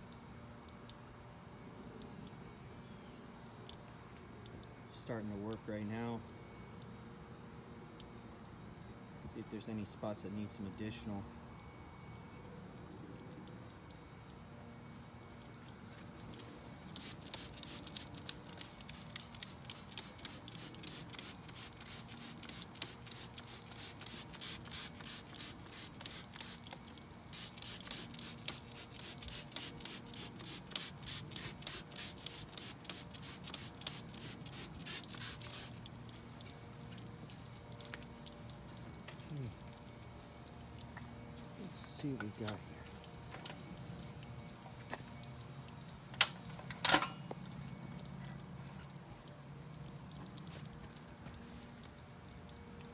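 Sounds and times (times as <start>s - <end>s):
spray bottle squirting: 16.9s - 35.8s.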